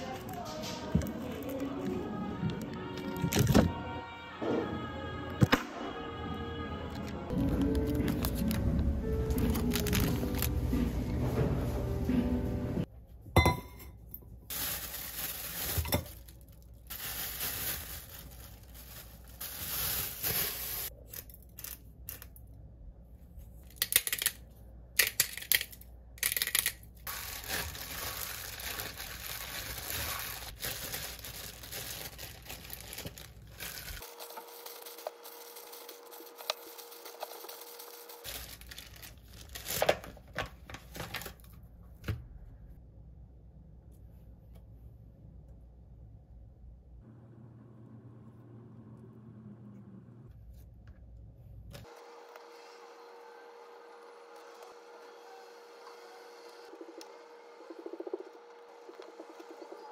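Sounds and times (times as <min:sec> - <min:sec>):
package tearing open: 0:07.3 - 0:10.5, 0:25.0 - 0:41.5
plastic wrapping crinkling: 0:07.3 - 0:10.7, 0:14.5 - 0:21.0, 0:26.2 - 0:41.5.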